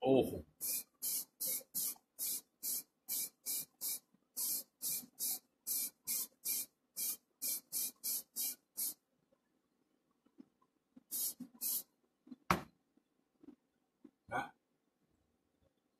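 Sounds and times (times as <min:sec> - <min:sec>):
aerosol can spraying in hissing bursts: 0:00.6 - 0:09.0, 0:11.1 - 0:11.9.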